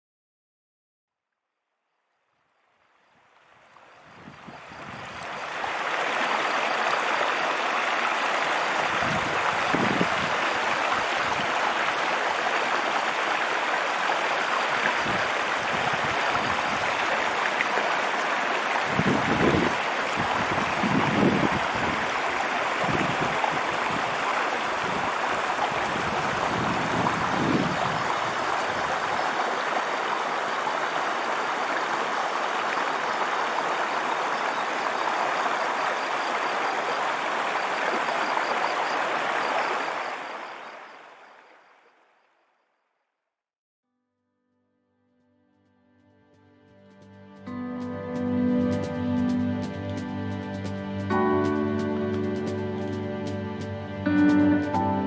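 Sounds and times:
stream flowing over rocks: 0:02.8 - 0:42.1.

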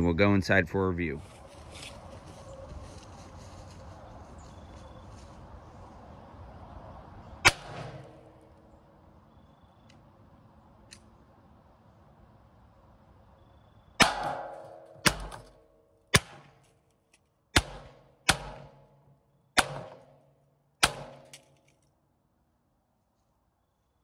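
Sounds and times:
rifle shots: 0:07.4 - 0:08.3, 0:14.0 - 0:16.6, 0:17.6 - 0:19.0, 0:19.6 - 0:20.2, 0:20.8 - 0:21.5.

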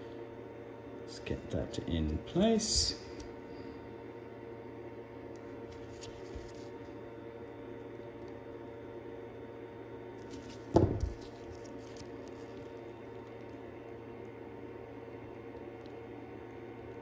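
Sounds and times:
electrical hum: 0:00.0 - 0:17.0
dull thump: 0:10.8 - 0:11.1.

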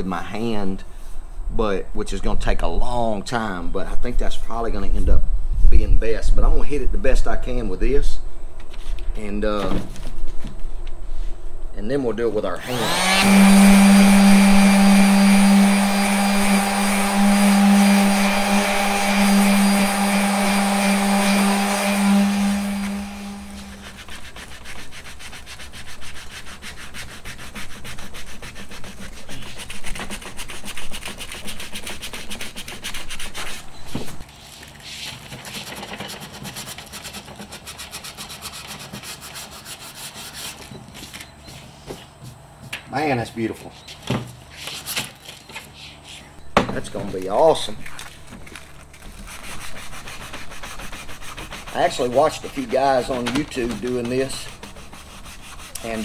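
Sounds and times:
electric sander on wood: 0:12.6 - 0:34.2, 0:46.9 - 0:56.0
hand sanding: 0:12.6 - 0:42.4, 0:47.2 - 0:56.0.

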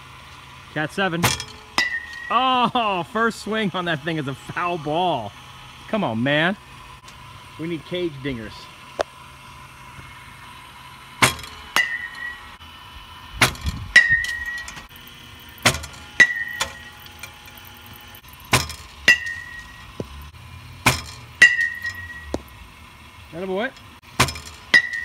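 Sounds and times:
metal bat pinging ball: 0:01.2 - 0:02.4, 0:11.2 - 0:12.5, 0:13.4 - 0:22.6, 0:24.2 - 0:25.0.

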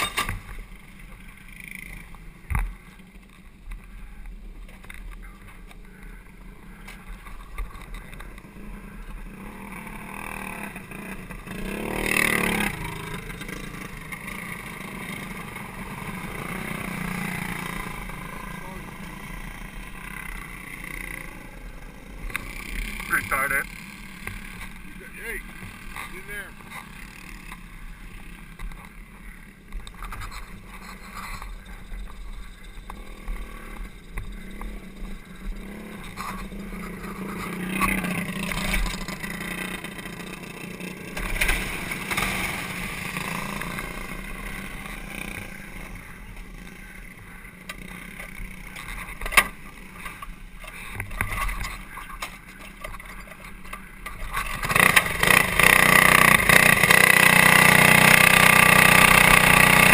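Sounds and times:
loud kart engine: 0:00.0 - 0:59.9
small kart engines humming: 0:00.0 - 0:59.9.

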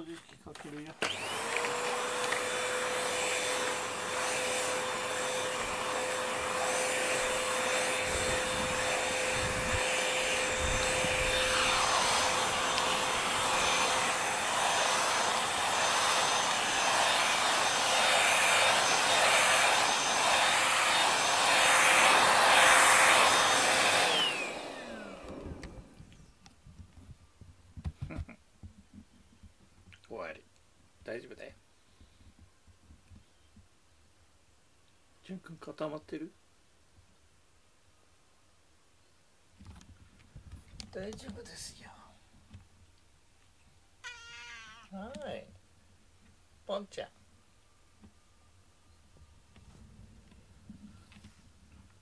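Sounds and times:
vacuum cleaner running: 0:01.0 - 0:26.1
vacuum motor spinning down: 0:01.0 - 0:26.2.

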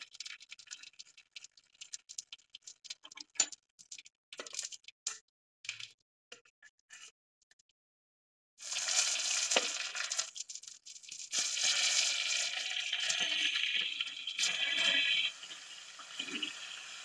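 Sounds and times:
hot oil sizzling in a pan: 0:08.6 - 0:17.0.

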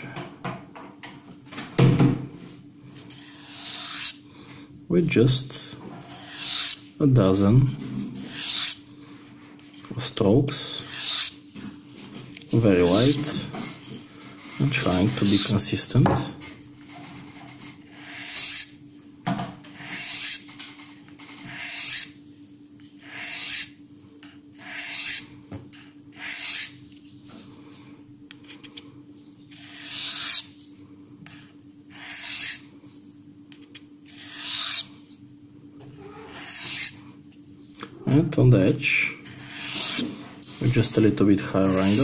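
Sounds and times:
knife blade on sharpening rod: 0:34.2 - 0:34.9.

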